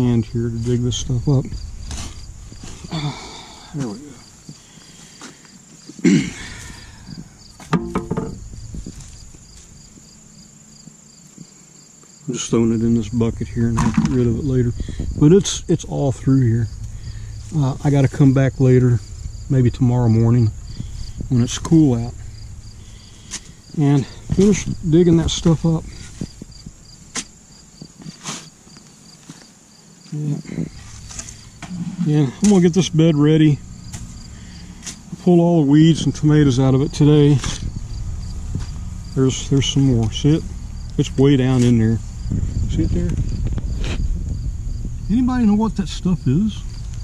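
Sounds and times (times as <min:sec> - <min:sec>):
crickets chirping: 0:00.0 - 0:47.0
spade scraping soil: 0:00.6 - 0:02.9, 0:28.0 - 0:28.6, 0:30.4 - 0:33.0, 0:33.9 - 0:37.8
person grunting: 0:02.8 - 0:04.2, 0:06.0 - 0:07.0.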